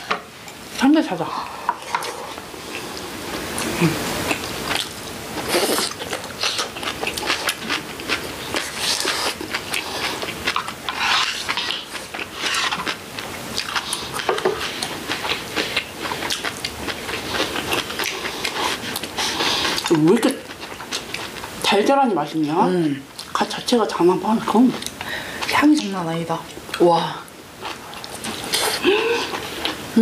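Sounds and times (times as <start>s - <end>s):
people chewing and crunching: 1.4s - 21.8s, 27.6s - 30.0s.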